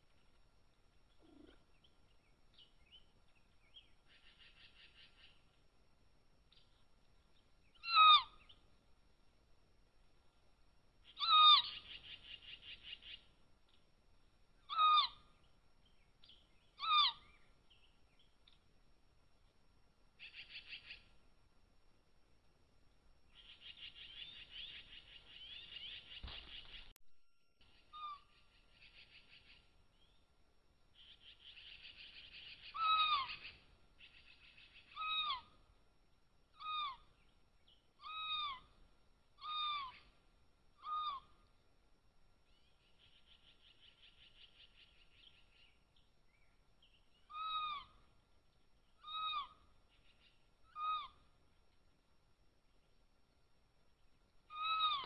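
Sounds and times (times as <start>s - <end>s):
cougar chirping: 1.1s - 1.7s, 11.1s - 13.2s, 16.7s - 17.4s, 31.0s - 35.6s, 36.5s - 37.2s, 38.0s - 38.8s, 39.4s - 40.1s, 40.8s - 41.4s, 47.2s - 48.2s, 48.9s - 51.3s, 54.5s - 55.0s.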